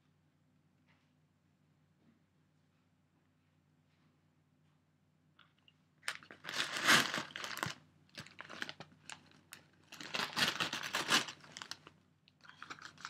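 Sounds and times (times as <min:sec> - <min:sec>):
paper popcorn bag crinkling: 0:06.1 - 0:13.0.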